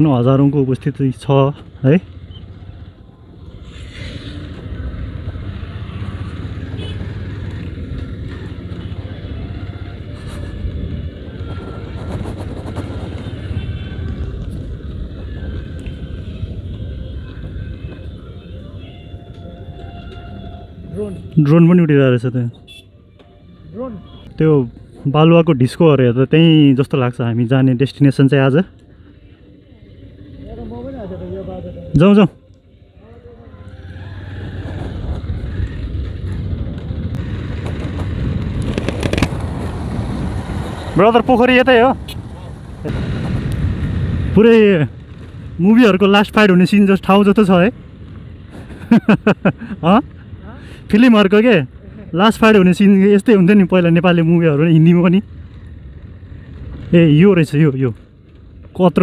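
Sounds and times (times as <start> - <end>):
motorcycle engine rumble: 0.0 - 59.0
wind buffeting microphone: 3.5 - 18.4, 33.8 - 50.9.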